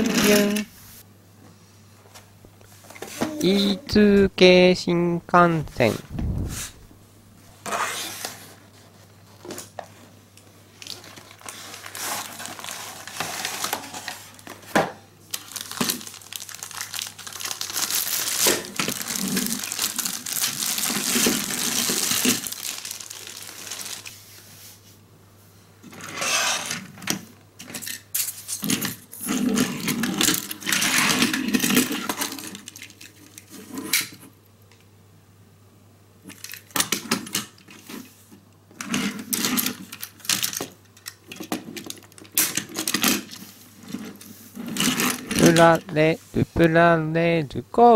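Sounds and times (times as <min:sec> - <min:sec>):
plastic bag crinkling: 0:10.7 - 0:14.5, 0:15.3 - 0:24.1.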